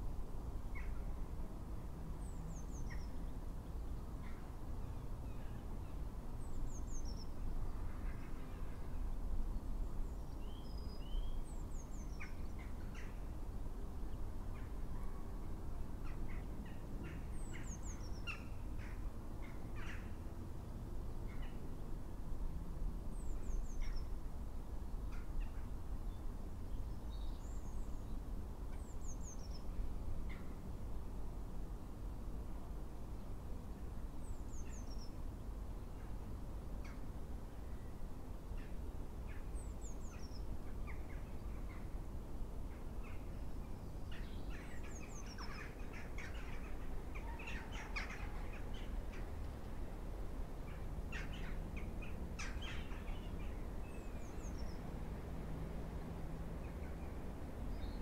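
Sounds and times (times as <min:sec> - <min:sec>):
low background noise: 0:00.0 - 0:58.0
wild birds chirping: 0:42.9 - 0:49.6, 0:50.6 - 0:55.3.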